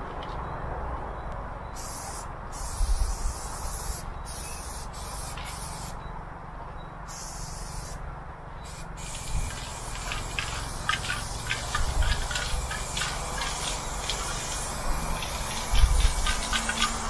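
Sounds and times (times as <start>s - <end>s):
spray paint can hissing: 1.8s - 6.0s, 7.1s - 8.0s, 8.6s - 17.0s.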